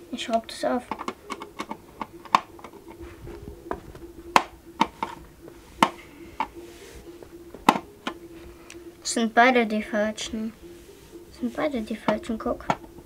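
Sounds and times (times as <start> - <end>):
faint steady hum: 0.0 - 13.0
screwdriver clicking on plastic: 0.9 - 2.9.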